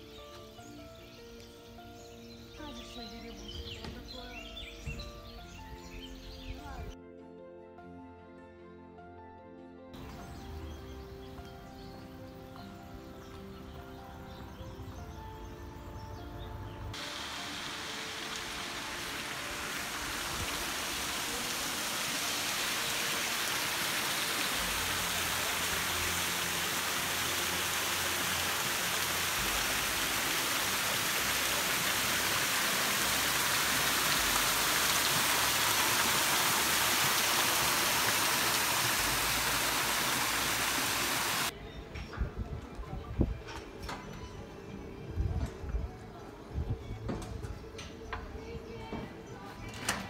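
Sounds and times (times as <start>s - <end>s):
fountain water pouring and splashing: 17.0s - 41.5s.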